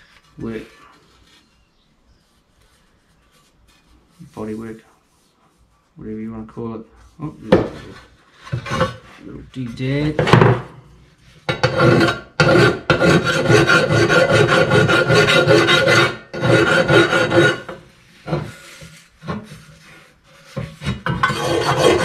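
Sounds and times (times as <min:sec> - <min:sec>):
hand file scraping sheet metal: 0:07.4 - 0:09.4, 0:11.2 - 0:22.0.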